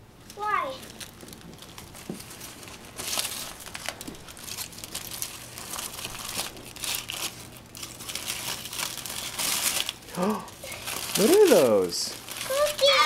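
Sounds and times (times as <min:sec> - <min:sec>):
aluminium foil crinkling: 0:00.2 - 0:13.0.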